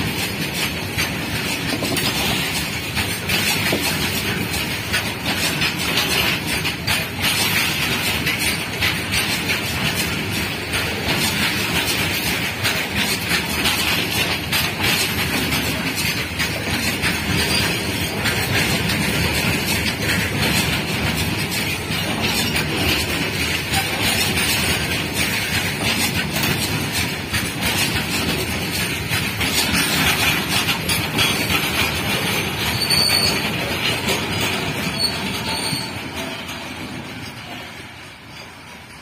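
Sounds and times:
train wheels clattering on rails: 0.0s - 39.0s
high wheel squeals: 32.4s - 36.5s.

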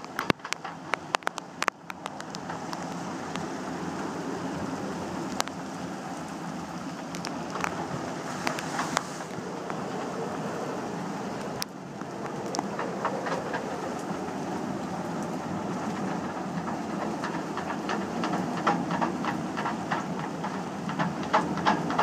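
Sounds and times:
sharp taps and clicks: 0.0s - 3.5s
wind and sea rushing: 0.0s - 22.0s.

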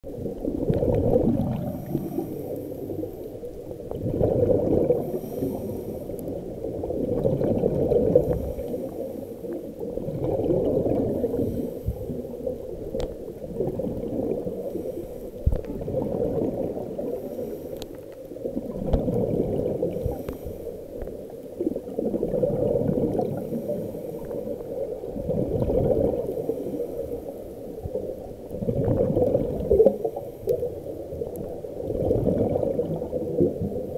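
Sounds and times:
bubbles gurgling underwater: 0.0s - 33.9s
diver breathing through regulator: 1.6s - 3.2s, 4.8s - 6.3s, 11.0s - 12.2s, 14.6s - 15.4s, 17.1s - 18.0s, 19.9s - 21.0s.

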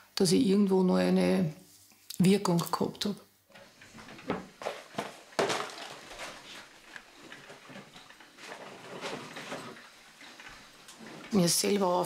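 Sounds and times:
things set down on counter: 4.2s - 6.6s.

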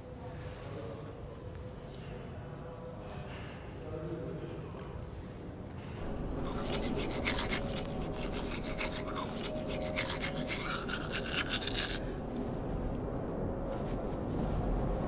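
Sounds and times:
toothbrush scrubbing teeth: 6.0s - 13.8s.

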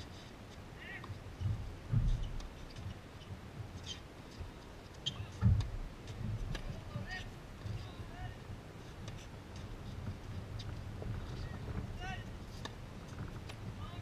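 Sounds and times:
low thumps: 1.4s - 2.5s.

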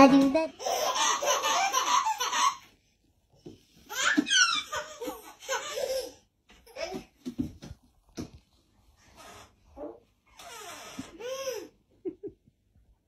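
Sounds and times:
baby belly-laughing: 0.2s - 2.7s, 3.9s - 7.1s
baby squealing: 3.9s - 6.1s.

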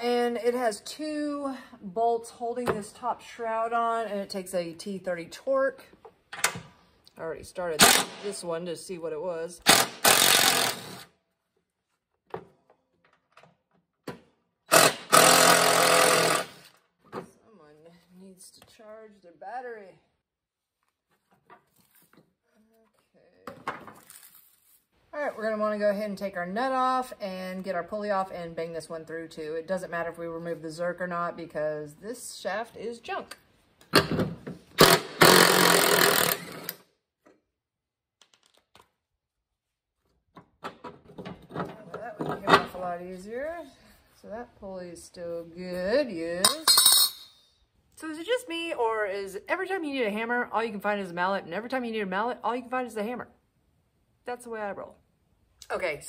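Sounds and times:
impact wrench rattling: 34.8s - 36.7s.

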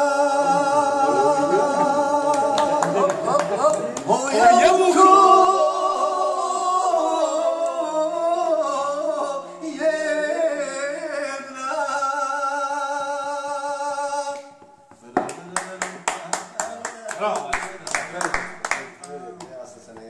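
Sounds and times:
man singing unaccompanied: 0.0s - 15.0s
hand clapping: 2.3s - 4.2s, 14.3s - 20.0s.

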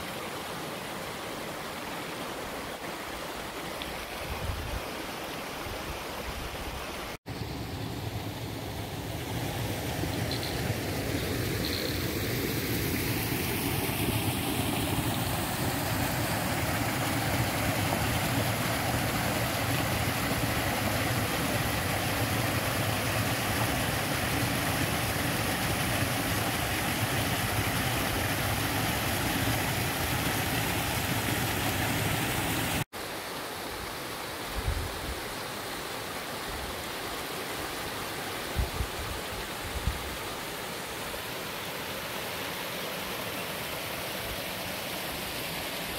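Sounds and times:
river water rushing over rocks: 8.0s - 34.5s.

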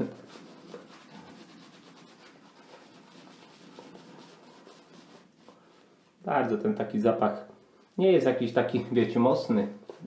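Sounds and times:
shaving brush swishing lather: 0.0s - 6.3s.

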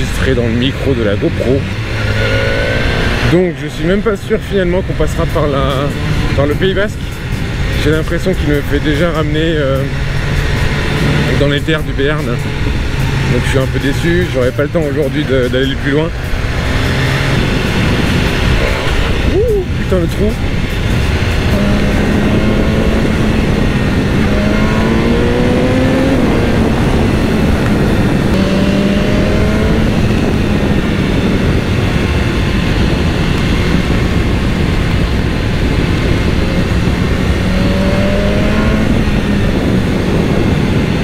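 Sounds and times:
motorcycle engine running: 0.0s - 41.0s
wind noise on microphone: 0.0s - 41.0s.

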